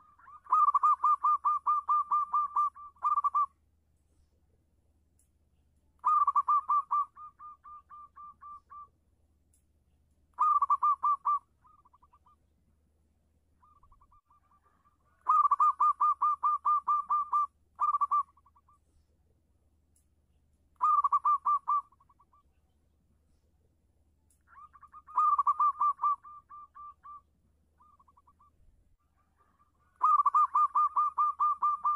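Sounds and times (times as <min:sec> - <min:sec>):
dove cooing: 0:00.0 - 0:03.6, 0:06.0 - 0:08.9, 0:10.4 - 0:12.4, 0:13.6 - 0:18.8, 0:20.8 - 0:22.4, 0:24.5 - 0:27.2, 0:27.8 - 0:28.5, 0:29.1 - 0:31.9.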